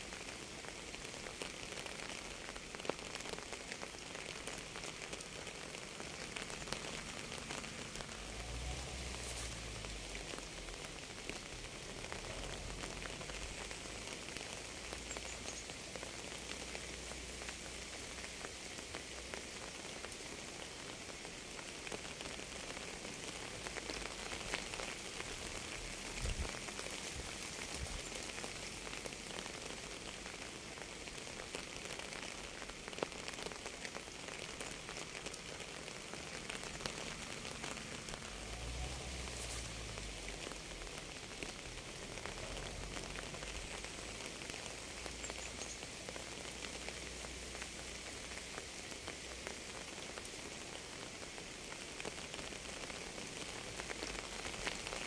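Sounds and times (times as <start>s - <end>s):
steady rain patter: 0.0s - 55.0s.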